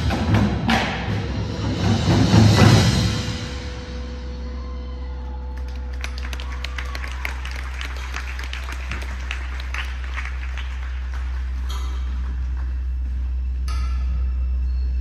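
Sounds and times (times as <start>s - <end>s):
low hum: 3.0s - 15.0s
hand claps: 5.6s - 13.0s.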